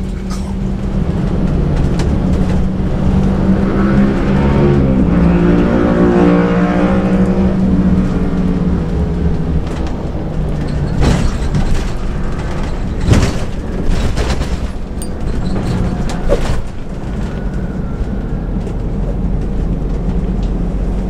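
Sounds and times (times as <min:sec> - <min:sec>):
bus engine and road drone: 0:00.0 - 0:21.0
body knocks and rattles: 0:08.4 - 0:21.0.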